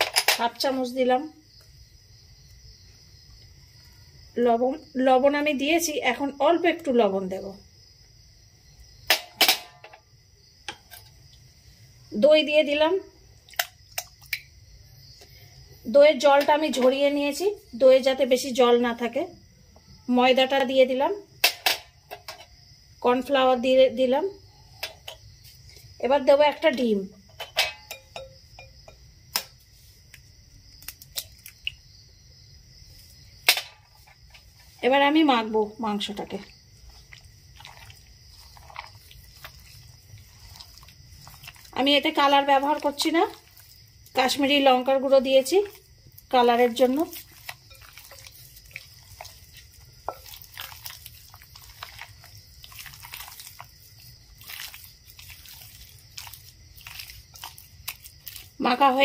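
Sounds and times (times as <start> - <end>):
crickets chirping: 0.0 - 59.0
hand squelching wet batter: 36.1 - 59.0.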